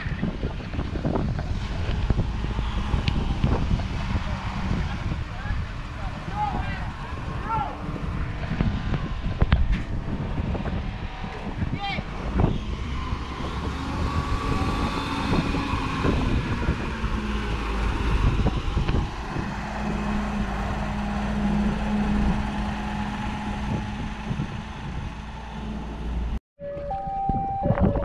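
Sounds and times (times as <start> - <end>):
wheel loader diesel engine: 0.2 - 26.4.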